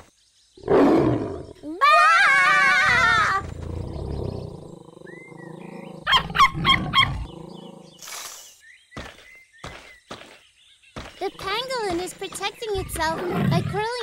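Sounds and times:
cartoon tiger growling: 2.5s - 8.0s, 12.8s - 14.0s.

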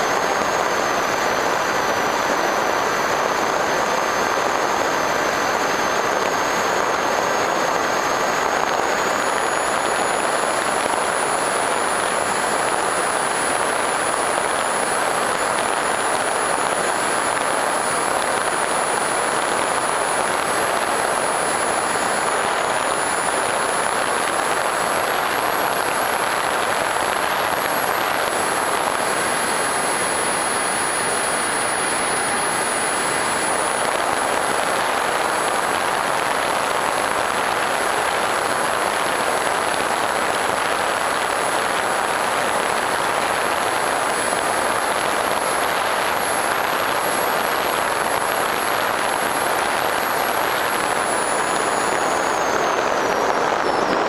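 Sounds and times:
propeller and wind rush: 0.0s - 54.0s
thin high motor whine: 0.0s - 54.0s.

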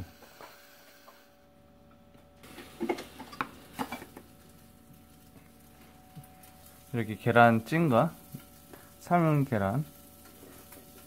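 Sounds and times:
faint steady hum: 0.0s - 11.0s
dishes clinking: 2.5s - 4.2s.

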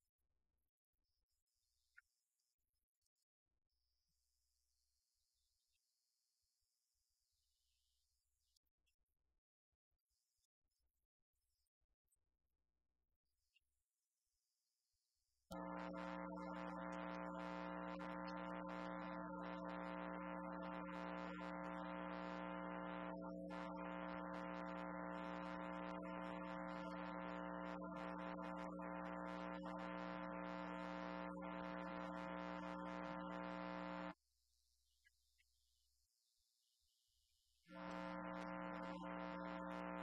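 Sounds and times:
electrical hum and buzz: 15.5s - 34.2s, 37.7s - 40.0s.

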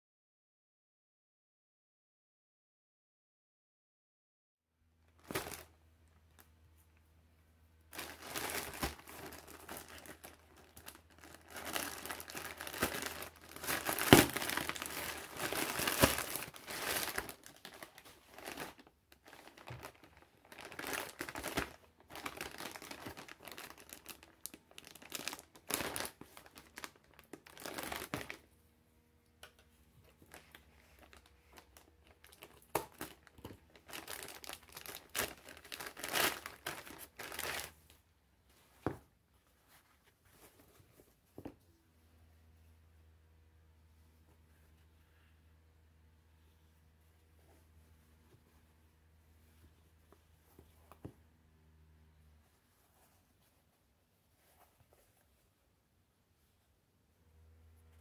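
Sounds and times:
plastic packaging crinkling: 5.2s - 6.5s, 7.9s - 28.4s, 30.1s - 37.9s.

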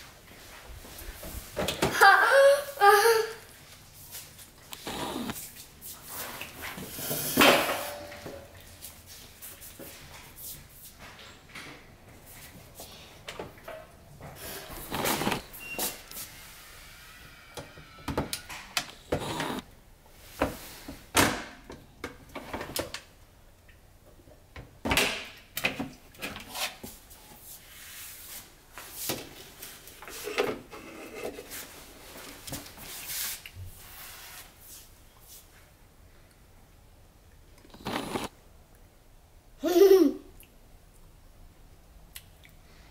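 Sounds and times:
pots knocking and rattling on shelves: 6.8s - 8.6s.

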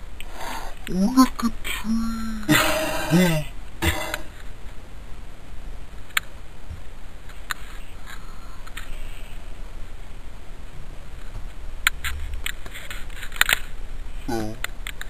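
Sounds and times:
low steady rumble: 0.0s - 15.0s.

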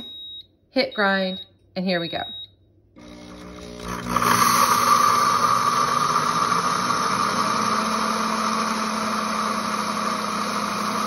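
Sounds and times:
blender grinding coffee beans: 3.0s - 11.0s.

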